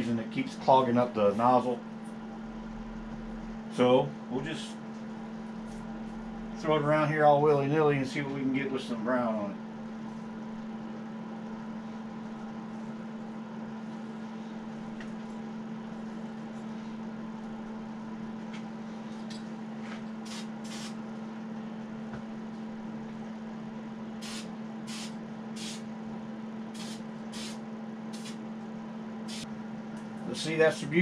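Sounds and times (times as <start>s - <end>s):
steady low hum: 0.0s - 31.0s
spray-paint can hissing: 20.2s - 21.0s, 24.2s - 25.8s, 26.8s - 28.4s.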